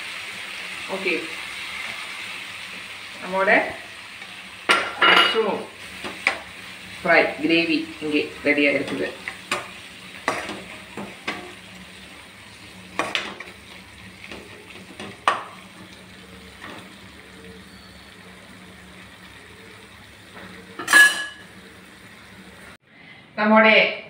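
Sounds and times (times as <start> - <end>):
food sizzling softly: 0.0 - 22.8
spoon scraping a pan: 8.6 - 11.7, 20.5 - 21.6.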